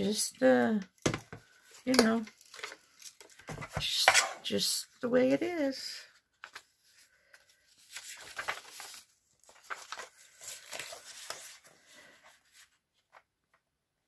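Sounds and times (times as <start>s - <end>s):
paper rustling and sliding: 6.4s - 13.3s.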